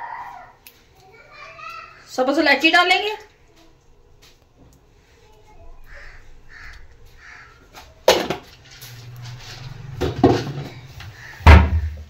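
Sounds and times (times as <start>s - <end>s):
spatula scraping frying pan: 8.6s - 11.4s.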